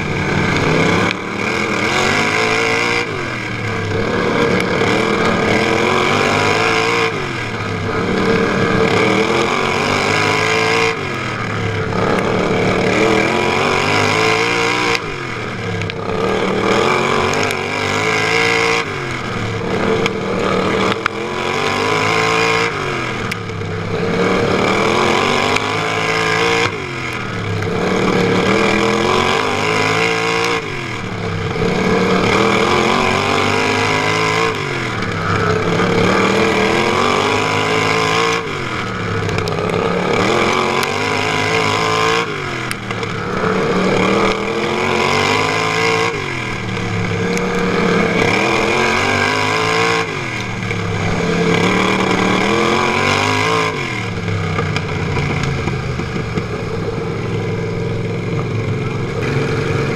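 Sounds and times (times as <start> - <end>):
lawn mower engine revving: 0.0 - 59.9.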